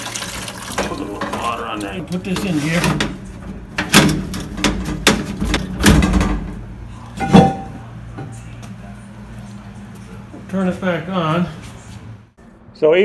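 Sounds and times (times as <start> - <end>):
plastic grille knocking and clattering: 2.3 - 6.6.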